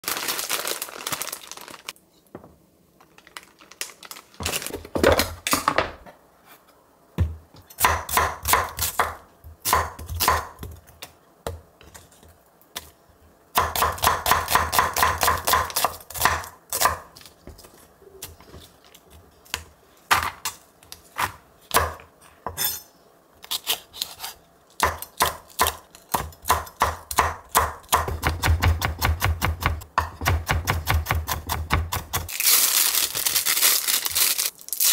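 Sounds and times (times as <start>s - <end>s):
knife chopping on wooden board: 24.8s - 32.3s.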